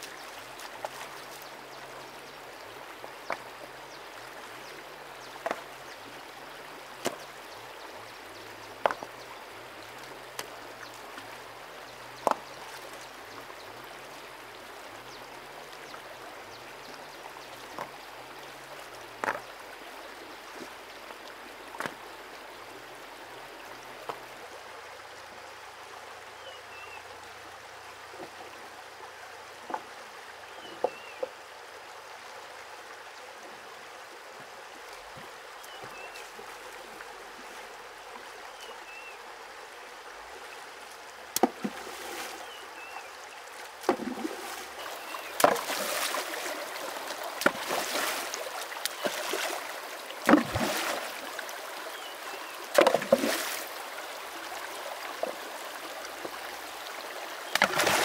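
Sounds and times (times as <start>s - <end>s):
stream running over stones: 0.0s - 58.0s
rocks knocking together: 8.8s - 9.1s.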